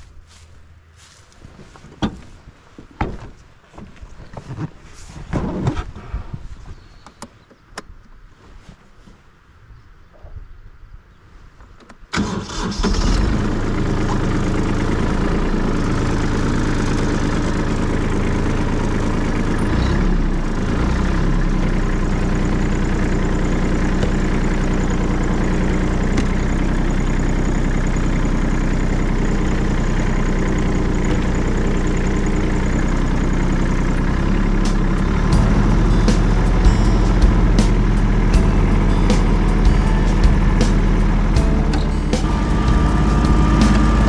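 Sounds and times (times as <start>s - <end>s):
tractor diesel engine idling: 0.0s - 2.8s, 12.2s - 44.0s.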